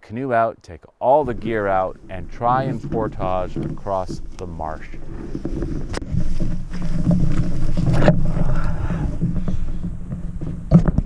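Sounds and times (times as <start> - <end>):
brush swishing: 1.2 - 10.0
clothing rubbing on microphone: 1.2 - 11.0.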